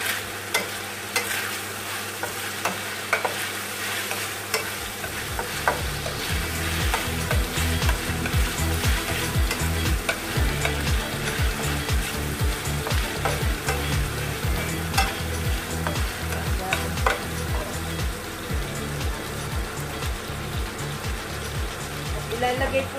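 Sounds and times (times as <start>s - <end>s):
spatula scraping pan: 0.0s - 17.9s
chicken sizzling in oil: 0.0s - 22.9s.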